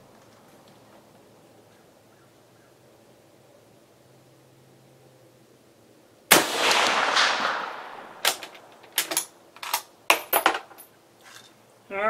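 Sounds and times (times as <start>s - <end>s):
rifle shot echo: 6.3s - 8.8s
rifle bolt metallic clicks: 6.7s - 9.9s.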